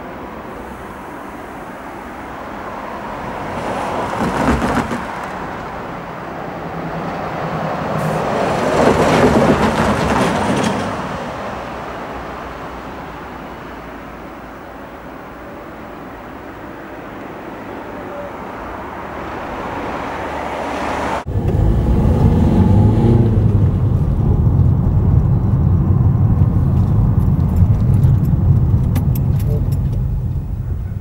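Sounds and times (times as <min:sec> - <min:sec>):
vehicle passing: 0:00.0 - 0:31.0.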